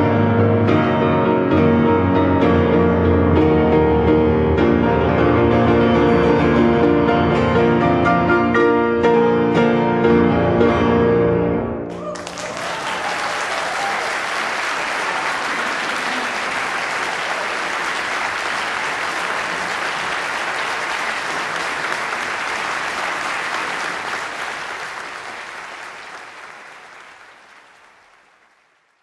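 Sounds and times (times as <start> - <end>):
audience applauding: 11.9 - 29.0.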